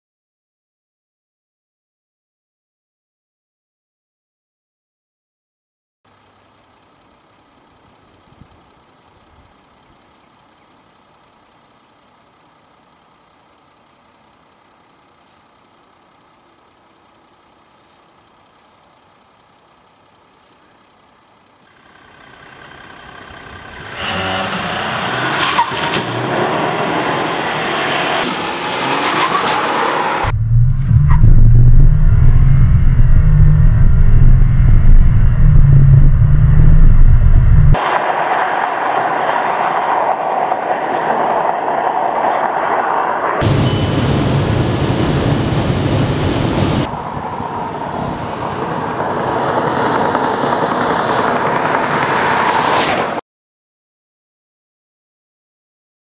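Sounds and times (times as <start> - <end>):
diesel pickup engine accelerating: 8.1 - 53.0.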